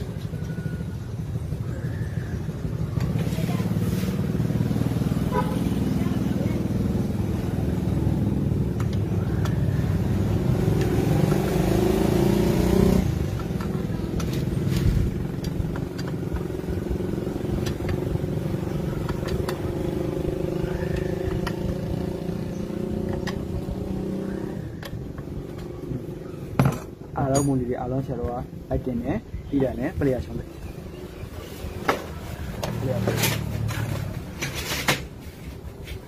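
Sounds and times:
motorcycle engine running: 0.0s - 26.9s.

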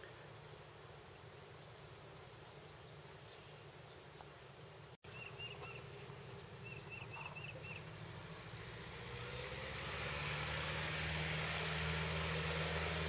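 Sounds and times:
propeller plane engine: 5.1s - 13.0s.

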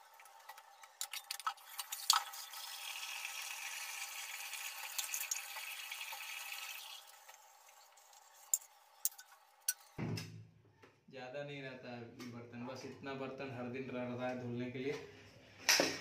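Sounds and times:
tap water running: 0.1s - 9.2s
metal dishes clinking: 8.5s - 9.9s.

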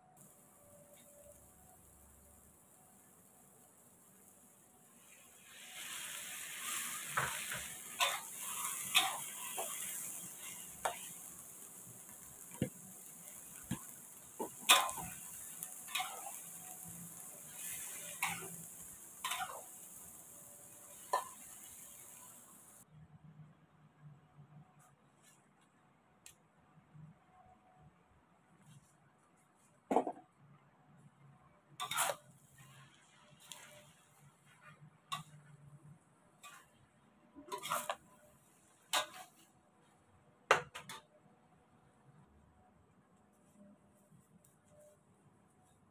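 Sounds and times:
faint frying sizzle: 0.2s - 22.9s, 31.8s - 40.0s
metal spatula scraping a wok: 5.0s - 22.4s, 31.8s - 35.5s, 36.4s - 36.8s, 37.4s - 39.5s.

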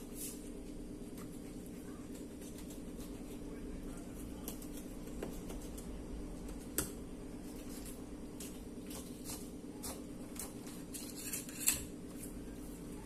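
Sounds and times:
knife scraping and clicking: 8.9s - 11.9s.

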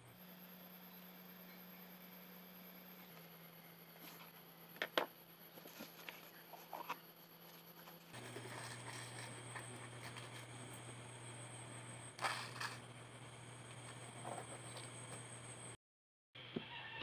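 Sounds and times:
steady low hum: 0.0s - 15.8s
hand-handling noises: 5.6s - 10.9s.

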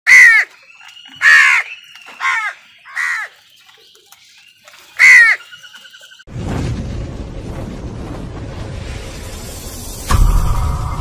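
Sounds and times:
crows cawing: 0.1s - 0.5s, 1.2s - 3.4s, 5.0s - 5.5s.

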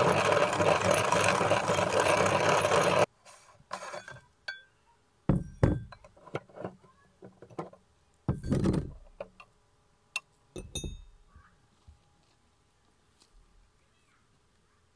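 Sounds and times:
metal parts knocking and clinking: 5.3s - 9.5s
ringing metal clinks: 10.6s - 11.2s.

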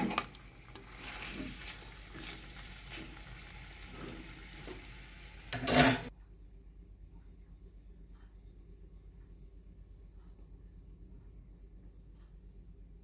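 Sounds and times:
meat and peppers sizzling: 0.0s - 6.1s
metal spoon scraping a pot: 5.5s - 6.1s.

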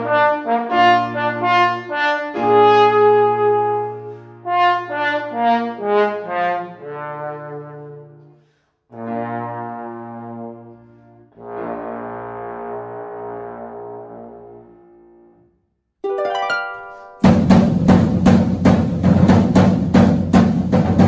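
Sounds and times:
piano accompaniment: 0.0s - 8.2s, 16.0s - 20.0s
trombone playing: 0.0s - 8.2s, 8.9s - 15.4s.

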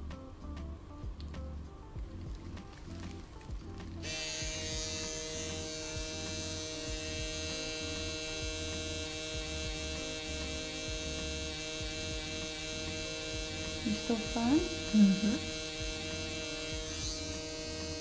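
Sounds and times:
tattoo pen machine buzzing: 3.8s - 18.0s.

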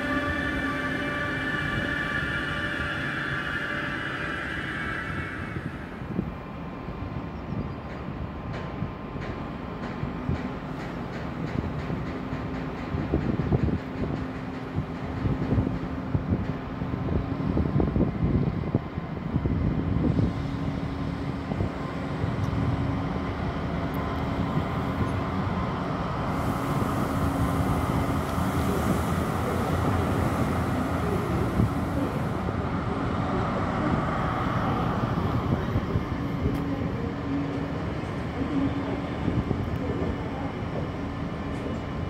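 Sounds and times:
diesel locomotive engine hum: 0.0s - 42.0s
train wagons rumbling: 0.0s - 42.0s
hiss: 26.3s - 32.4s.

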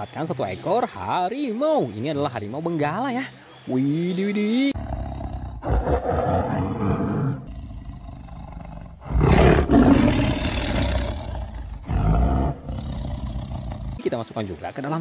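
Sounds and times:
tiger roaring: 4.8s - 14.0s.

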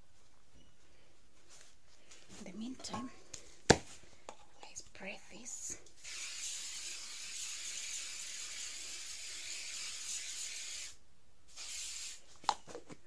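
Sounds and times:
aerosol spray can hissing: 6.0s - 12.3s.

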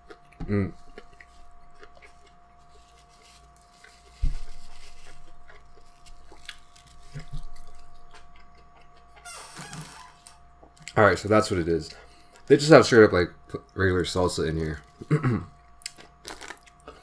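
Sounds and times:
person chewing food: 0.0s - 9.4s, 10.0s - 11.0s, 14.9s - 17.0s
paper napkin rubbing: 2.8s - 5.2s.

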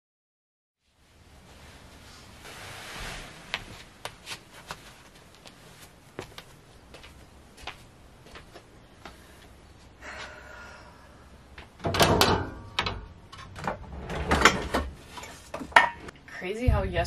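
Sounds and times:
soft steps and clicks: 3.5s - 9.5s.

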